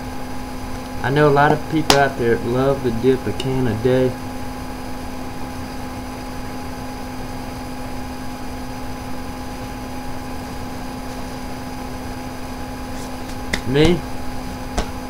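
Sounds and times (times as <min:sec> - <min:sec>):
low steady hum: 0:00.0 - 0:15.0
even hiss: 0:01.0 - 0:04.2.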